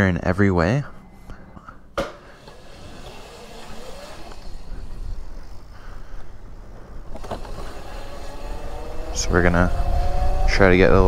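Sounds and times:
electric motor whine: 0:02.3 - 0:11.0
wind and tyre rumble: 0:02.6 - 0:11.0.

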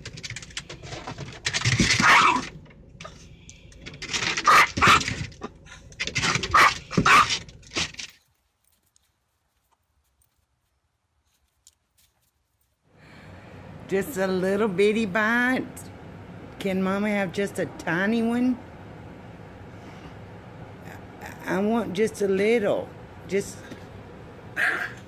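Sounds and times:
small dog yapping: 0:01.9 - 0:02.5, 0:04.4 - 0:05.2, 0:06.4 - 0:07.4, 0:24.6 - 0:25.0.

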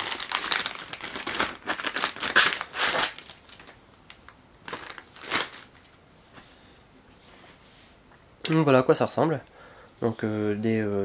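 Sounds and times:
plastic bag crinkling: 0:00.0 - 0:06.0.

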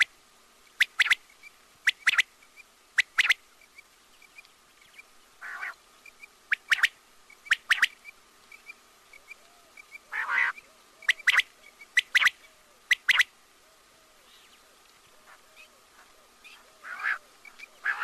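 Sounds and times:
quail calling: 0:00.8 - 0:01.2, 0:01.8 - 0:02.3, 0:03.0 - 0:03.4, 0:05.4 - 0:05.8, 0:06.5 - 0:18.0.

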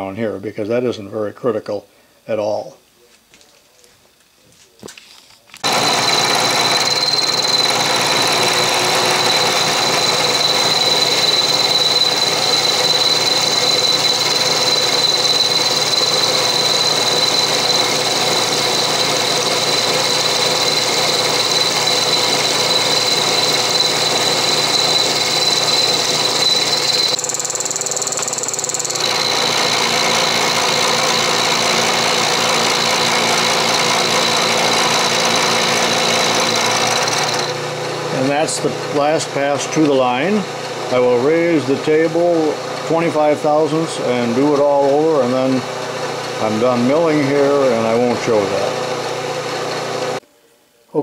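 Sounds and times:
milling machine cutting steel: 0:05.6 - 0:50.2
high whine: 0:05.6 - 0:50.3.

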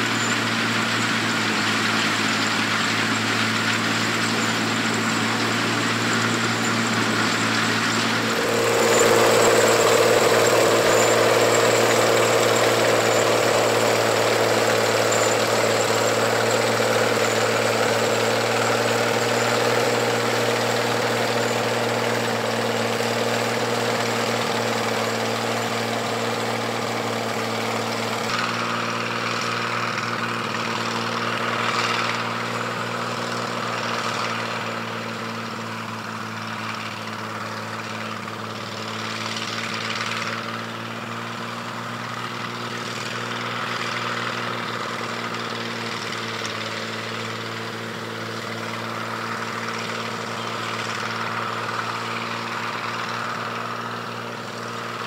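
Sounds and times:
combine harvester engine running: 0:00.0 - 0:55.0
threshing machinery hum: 0:00.0 - 0:55.0.

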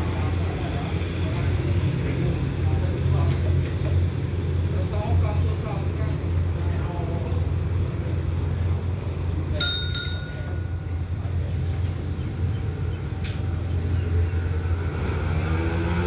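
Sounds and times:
diesel locomotive engine idling: 0:00.0 - 0:14.6
bright metallic ding: 0:09.6 - 0:11.0.

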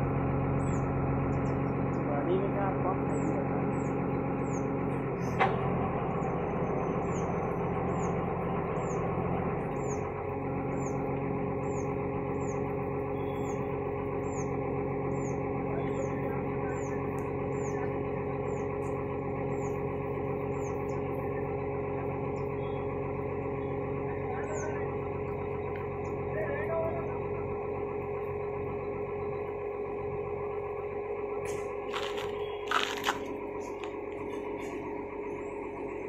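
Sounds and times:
diesel engine running: 0:00.0 - 0:36.0
faint high chirp: 0:12.4 - 0:13.7.

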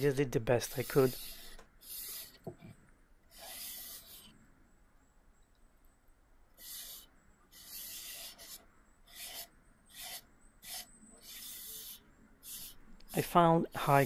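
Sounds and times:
sandpaper rubbing wood: 0:00.0 - 0:02.4, 0:03.3 - 0:04.3, 0:06.6 - 0:13.4.

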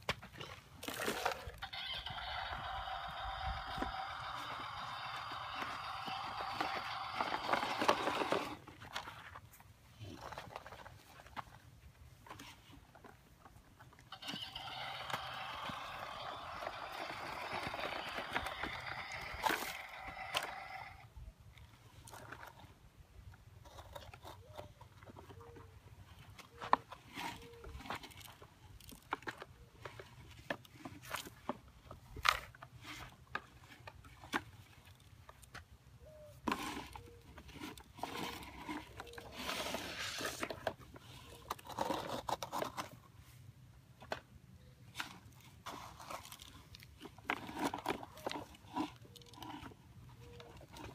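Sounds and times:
plastic toys knocking on dirt: 0:00.0 - 0:09.2, 0:13.9 - 0:21.0
bucket scraping through gravelly dirt: 0:00.3 - 0:01.6, 0:04.3 - 0:11.3, 0:36.3 - 0:43.4, 0:45.0 - 0:50.9
toy tractor engine sound effect: 0:00.9 - 0:08.7, 0:14.1 - 0:21.2.

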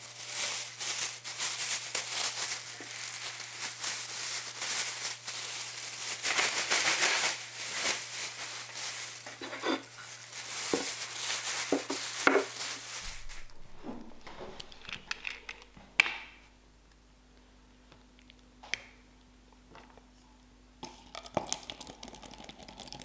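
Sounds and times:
plastic bag rustling: 0:00.0 - 0:15.8.

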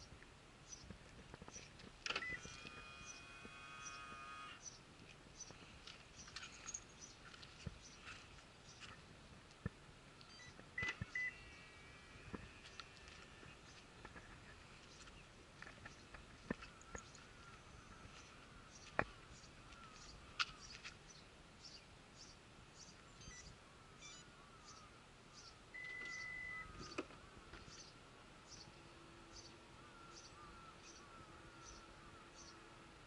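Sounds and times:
tailgate warning beep: 0:02.1 - 0:03.2, 0:10.3 - 0:11.4, 0:25.8 - 0:26.7
faint high chirps: 0:23.1 - 0:24.8, 0:25.4 - 0:26.8.

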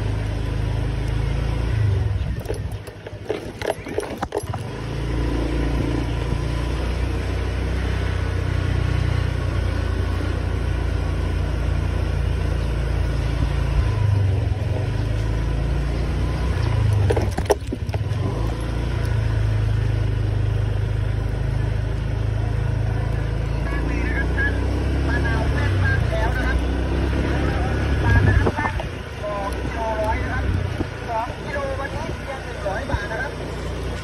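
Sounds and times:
scooter engine running: 0:00.0 - 0:34.0
wind rumble on microphone: 0:26.0 - 0:33.2.

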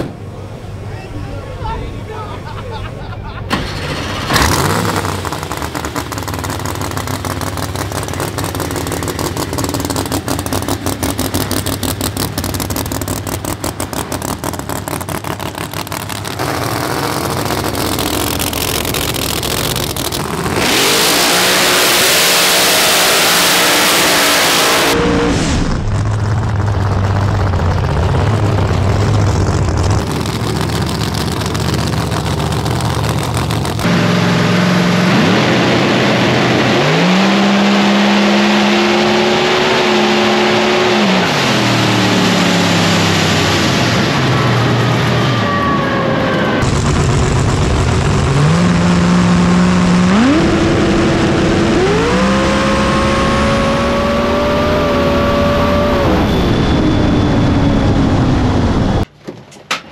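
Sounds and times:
drag race engine idling and revving: 0:03.4 - 0:59.1.

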